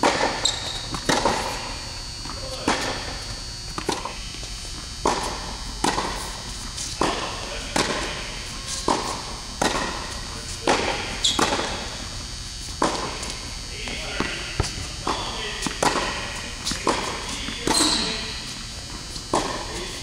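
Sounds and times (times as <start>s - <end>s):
tennis ball struck by racket: 0.0s - 1.6s, 5.0s - 11.8s, 12.8s - 13.2s, 14.2s - 17.8s
tennis ball bouncing on hard court: 0.0s - 12.0s, 12.8s - 18.5s, 19.3s - 19.9s.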